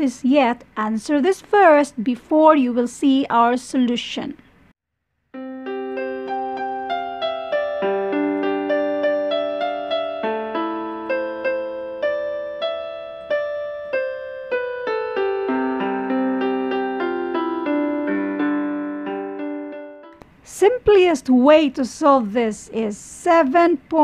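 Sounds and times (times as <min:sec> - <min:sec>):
slow piano tune: 0:05.3 - 0:20.4.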